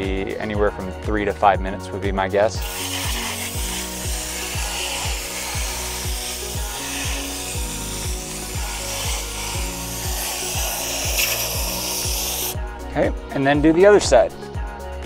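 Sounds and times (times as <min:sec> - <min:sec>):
background music with beat: 0:00.0 - 0:15.0
aerosol can spraying hiss: 0:02.6 - 0:12.6.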